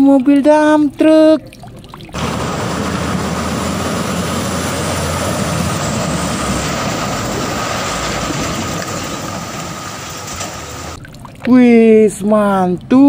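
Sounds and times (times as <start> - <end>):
water splashing from wheels: 1.8 - 11.6
truck engine rumble: 2.2 - 11.0.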